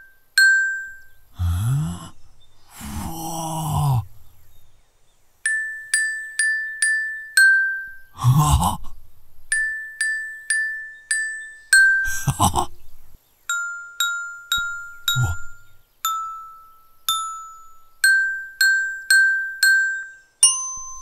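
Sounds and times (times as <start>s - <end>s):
toy glockenspiel notes: 0.0s - 2.0s, 5.4s - 8.4s, 9.4s - 12.9s, 13.5s - 21.0s
man's short vocal sound: 1.4s - 4.3s, 8.2s - 9.0s, 15.2s - 15.6s.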